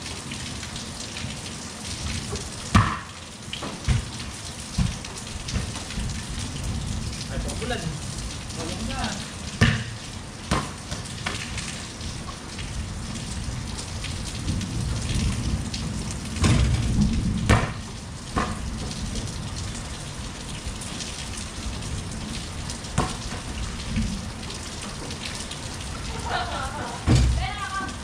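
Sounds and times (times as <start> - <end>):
rain on concrete: 0.0 - 28.0
sharp knocks: 9.6 - 11.4, 16.4 - 16.9, 17.5 - 17.8.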